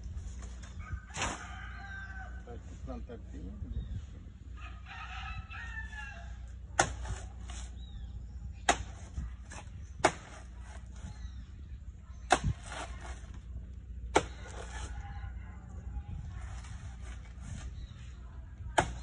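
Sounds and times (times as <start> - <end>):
blade chopping plant stem: 18.8 - 19.0.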